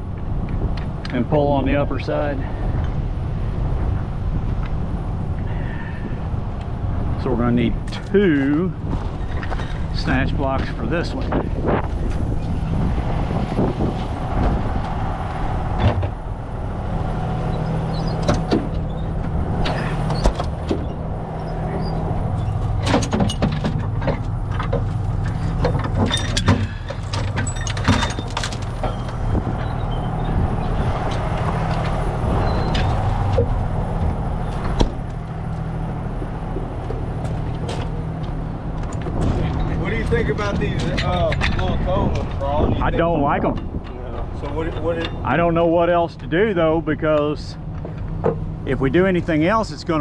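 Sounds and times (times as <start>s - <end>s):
knocks and clanks of rigging: 22.4s - 30.0s.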